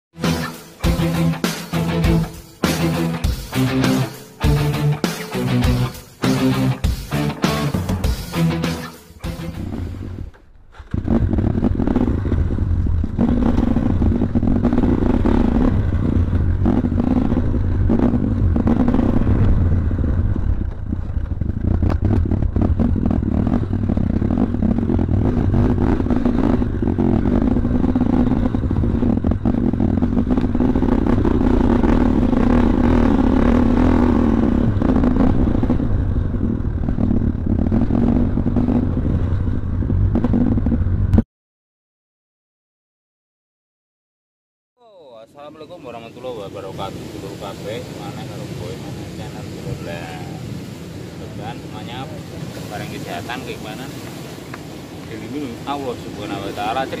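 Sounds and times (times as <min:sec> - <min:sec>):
motorcycle engine running: 0:10.9 - 0:41.2.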